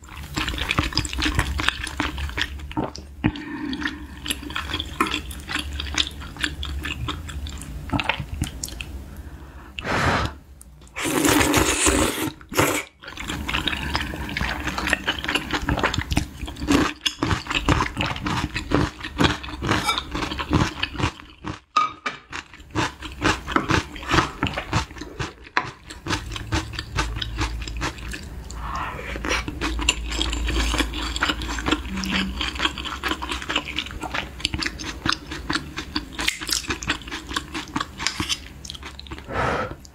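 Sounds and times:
slurping: 9.8s - 16.8s, 27.6s - 34.3s
wet chewing: 22.3s - 39.9s.

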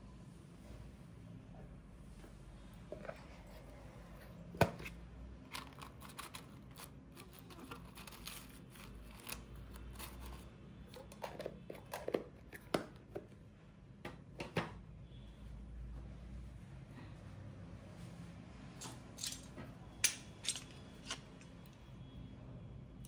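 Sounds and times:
paper rustling and shuffling: 5.4s - 10.4s.

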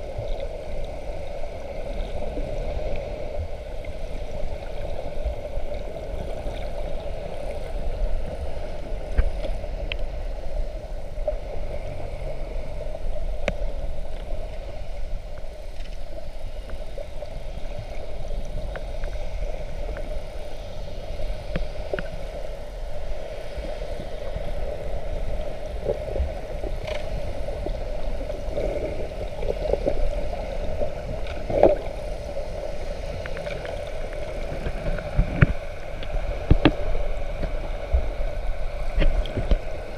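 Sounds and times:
underwater low rumble: 0.0s - 39.9s
faint clicks: 9.1s - 10.1s.

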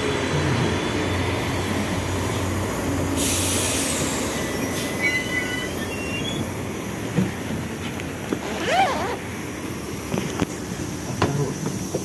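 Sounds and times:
trolleybus humming: 0.0s - 12.0s
air hiss: 3.1s - 4.9s
faint high squeaks: 4.6s - 6.4s.

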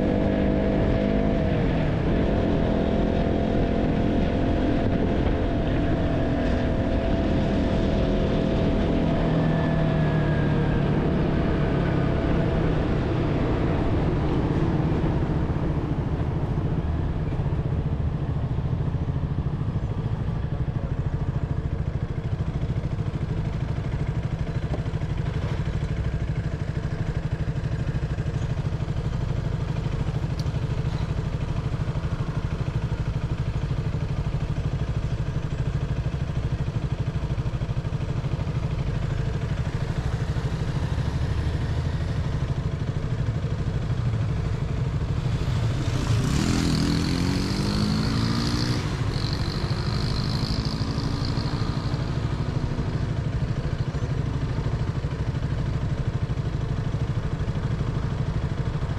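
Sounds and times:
motorcycle engine running: 0.0s - 58.9s
road noise: 0.0s - 58.9s
engine revving up: 45.6s - 51.7s.

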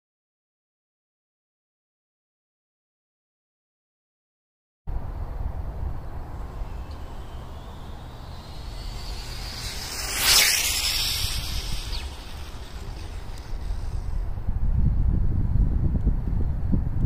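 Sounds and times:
wind rumble on microphone: 4.9s - 17.0s
electric rc car passing: 5.2s - 14.8s.

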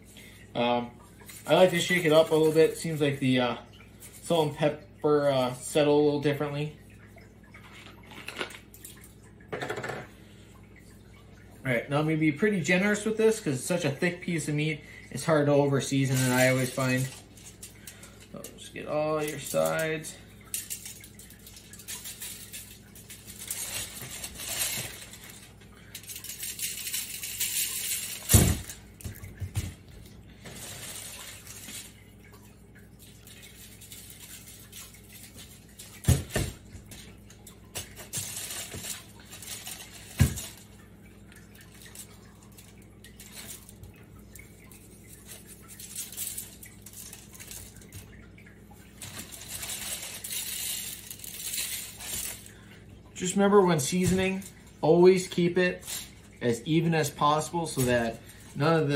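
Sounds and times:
foil crinkling: 1.2s - 3.3s, 15.8s - 29.3s, 29.9s - 32.0s, 33.0s - 48.1s, 48.9s - 52.6s, 53.2s - 58.9s.

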